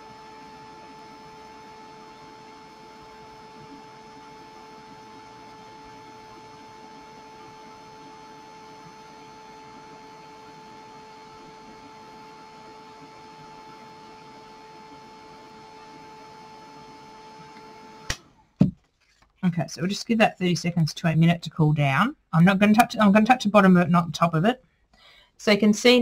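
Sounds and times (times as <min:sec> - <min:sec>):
heat tool fan humming: 0:00.0 - 0:18.2.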